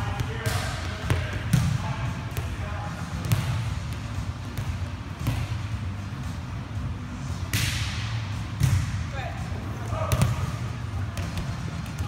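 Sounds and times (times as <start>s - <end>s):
volleyball slaps and bounces: 0.0s - 5.8s, 7.3s - 9.1s, 10.0s - 12.0s
steady low hum: 0.0s - 12.0s.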